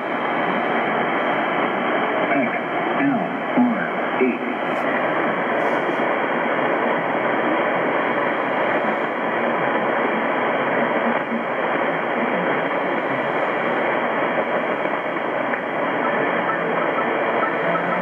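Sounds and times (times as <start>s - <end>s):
shortwave radio static hiss: 0.0s - 18.0s.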